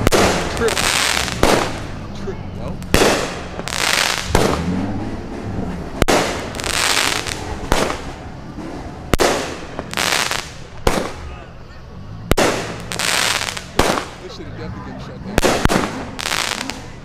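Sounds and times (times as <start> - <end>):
fireworks bangs: 0.0 - 2.1, 2.8 - 11.5, 12.3 - 14.3, 15.4 - 17.0
fireworks hissing: 0.0 - 2.1, 2.7 - 4.7, 6.0 - 11.6, 12.3 - 14.4, 15.4 - 17.0.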